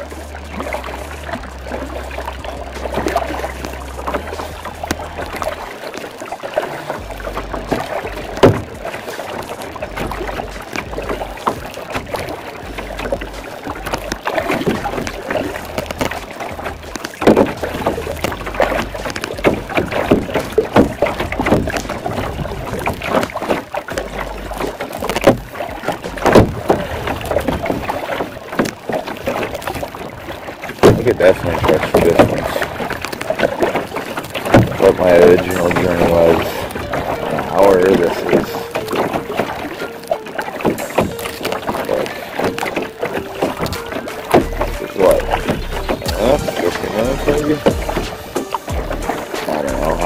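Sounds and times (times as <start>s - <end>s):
wind rumbling on microphone: 0.0s - 6.2s, 6.9s - 39.7s
paddle splashes: 0.0s - 50.0s
water slapping against hull: 0.0s - 50.0s.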